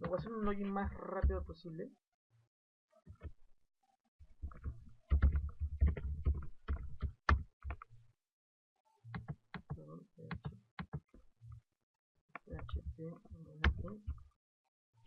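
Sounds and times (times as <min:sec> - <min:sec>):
keyboard typing: 0:04.4 - 0:07.9.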